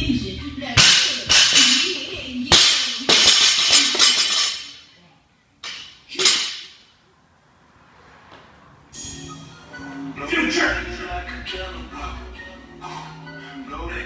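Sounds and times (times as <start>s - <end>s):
plates rattling: 2.6s - 4.8s.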